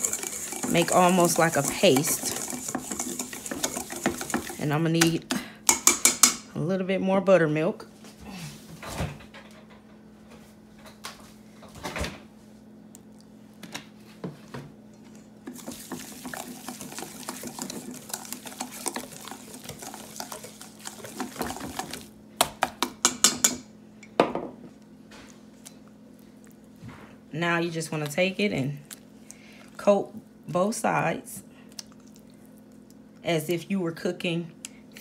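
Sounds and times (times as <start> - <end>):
whisk scraping metal bowl: 0.0 - 4.8, 15.5 - 22.1.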